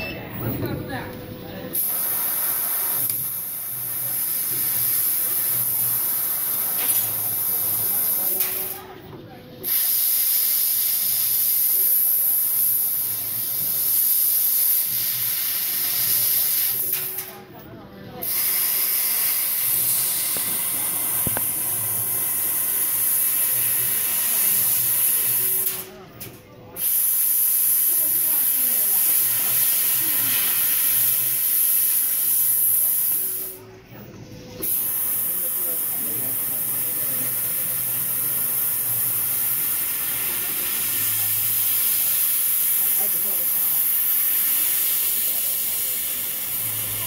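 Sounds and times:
high-pitched gas hiss: 0:18.2 - 0:25.9, 0:26.8 - 0:33.6, 0:34.6 - 0:47.0.

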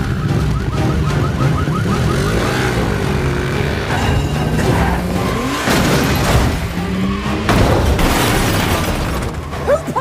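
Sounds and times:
car alarm chirping: 0:00.0 - 0:02.8
engines revving: 0:00.0 - 0:10.0
film score music: 0:00.0 - 0:10.0.

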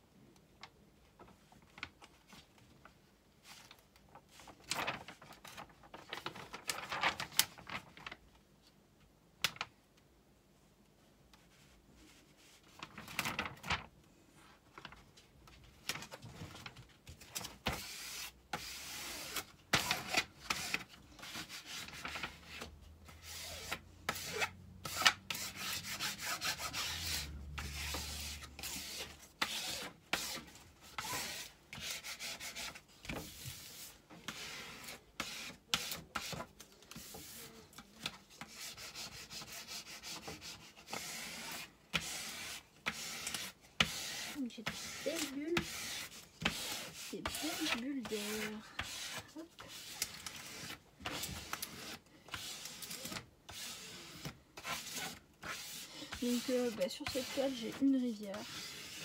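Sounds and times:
hands rubbing plastic film: 0:03.4 - 0:08.2, 0:23.4 - 0:59.0.

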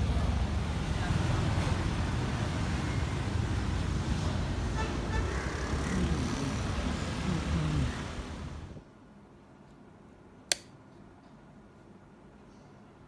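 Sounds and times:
street traffic noise: 0:00.0 - 0:08.9
switch click: 0:10.5 - 0:10.7.

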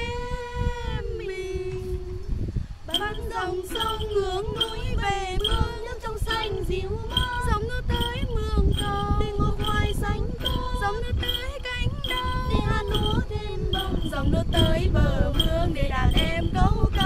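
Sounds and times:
woman singing: 0:00.0 - 0:17.0.

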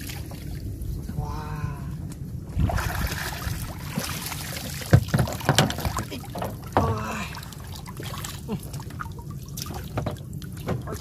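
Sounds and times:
wind rumble on microphone: 0:00.0 - 0:07.0
knocks on boat hull: 0:04.9 - 0:07.0.

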